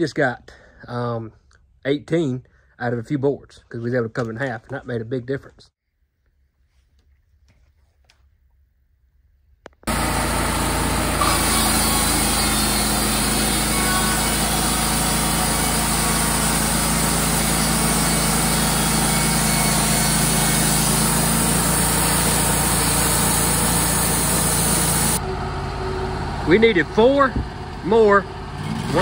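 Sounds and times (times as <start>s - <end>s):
band sawmill running: 9.8s - 29.0s.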